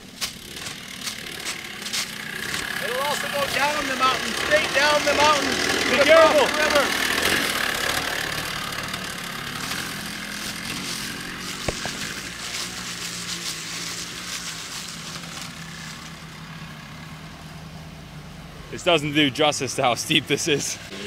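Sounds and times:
motorcycle engine running low: 0.0s - 18.2s.

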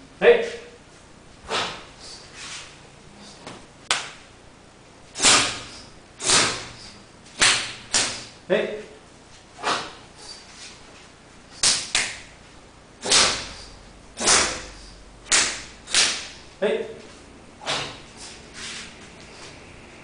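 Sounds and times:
open-hand slaps on bare skin: 3.9s - 4.2s, 7.4s - 8.3s, 11.6s - 12.3s, 13.1s - 13.6s, 14.2s - 16.3s.

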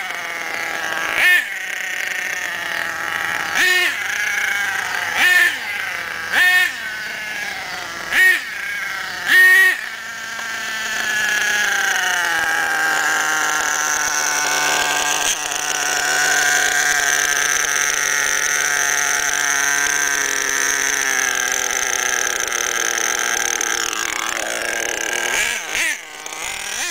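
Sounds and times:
two-stroke engine revving: 0.0s - 26.9s.

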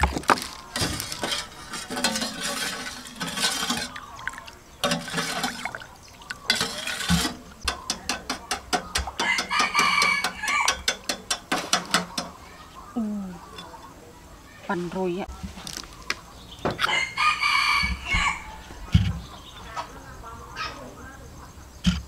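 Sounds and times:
metal ladle stirring sauce in pot: 0.7s - 12.3s
rooster crowing: 9.2s - 10.8s, 16.8s - 18.8s.

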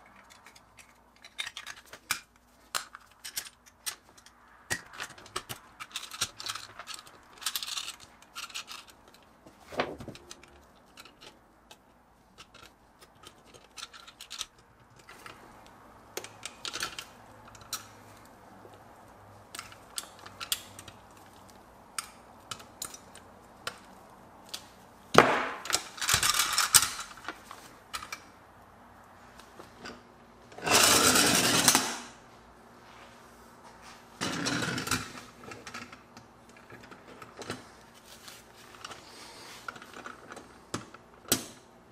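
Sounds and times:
metal toy parts clicking: 0.0s - 9.3s, 10.2s - 15.4s, 16.1s - 17.9s, 19.5s - 21.3s, 25.6s - 27.3s
toy wheels rolling on wood: 0.0s - 24.9s, 25.6s - 28.2s, 30.6s - 32.0s.

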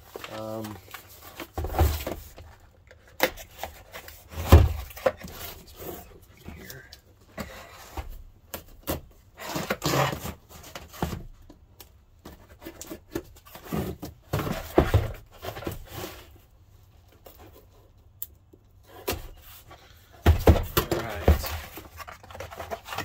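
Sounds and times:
cardboard scraping and rustling: 0.0s - 11.5s, 12.2s - 16.5s, 18.9s - 23.0s
dull thumps of boxes: 1.4s - 2.5s, 4.3s - 5.3s, 13.1s - 15.9s, 20.2s - 21.9s.

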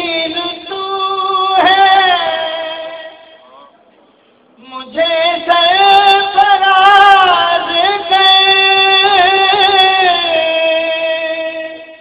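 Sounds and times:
man singing elegy unaccompanied: 0.0s - 3.4s, 4.6s - 12.0s.

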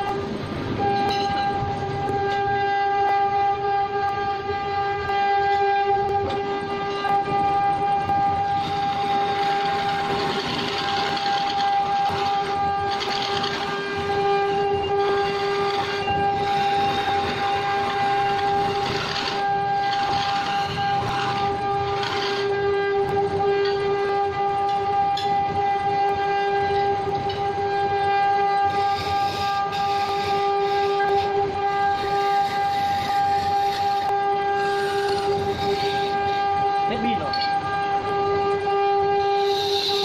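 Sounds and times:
wood lathe humming: 6.3s - 25.2s, 27.7s - 40.0s.

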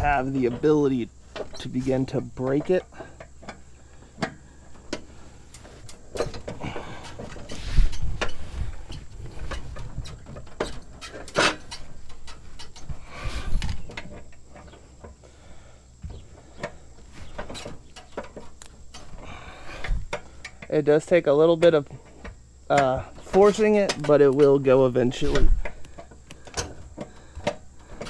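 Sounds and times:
socket wrench clanking on metal: 4.2s - 13.0s.

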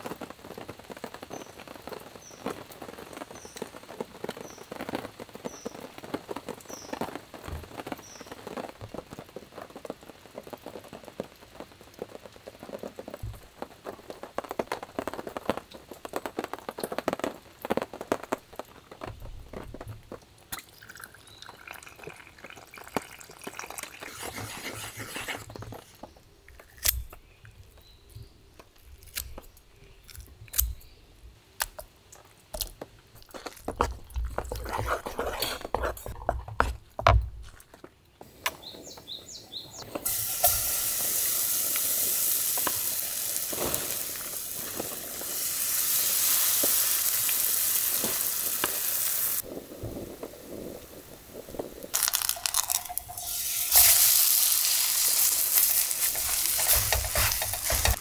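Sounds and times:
rain dripping: 0.0s - 24.4s, 38.2s - 58.0s
bird chirping: 38.5s - 39.9s.

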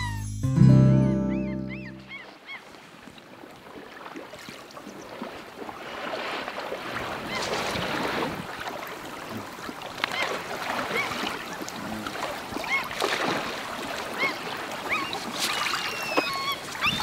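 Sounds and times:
intro music: 0.0s - 2.1s
bird calls: 1.3s - 2.7s, 14.2s - 17.0s
water sloshing and splashing: 2.2s - 17.0s.

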